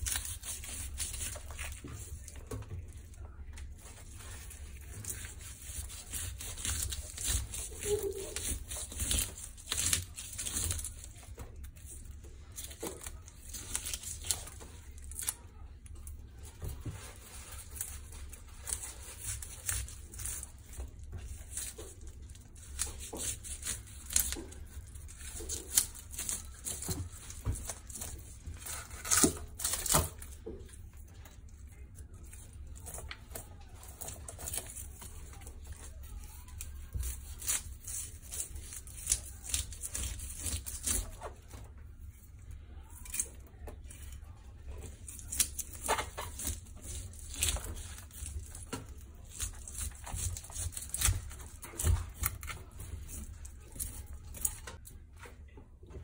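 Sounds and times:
knife scraping fish scales: 4.3 - 11.2.

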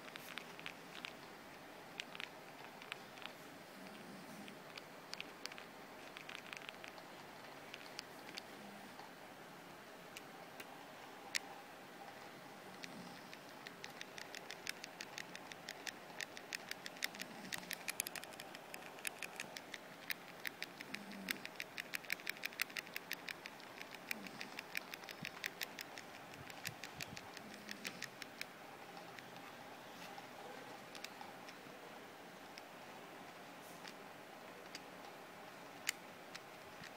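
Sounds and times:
calculator keys clicking: 13.6 - 28.5.

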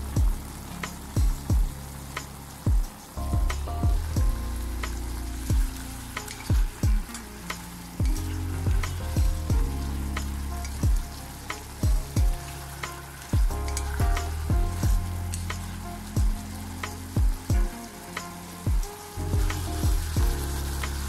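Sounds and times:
background music with bass: 0.0 - 21.0
meat sizzling in a pot: 0.0 - 21.0.

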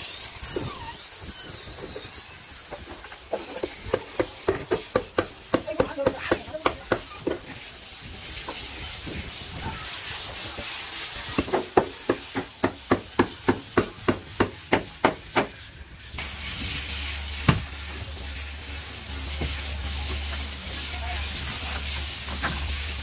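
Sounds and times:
hammer striking wood: 3.9 - 7.4, 11.4 - 15.5.

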